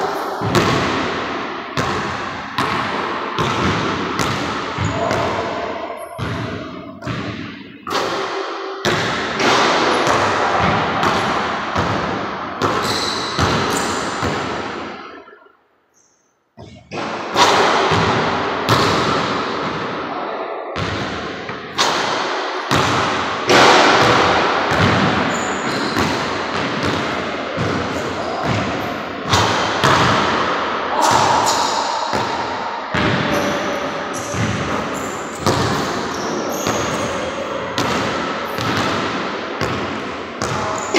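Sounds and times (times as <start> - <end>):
basketball bouncing on wooden floor: 1.8 - 5.4, 24.0 - 27.8, 28.4 - 30.3, 35.4 - 37.1, 37.8 - 40.6.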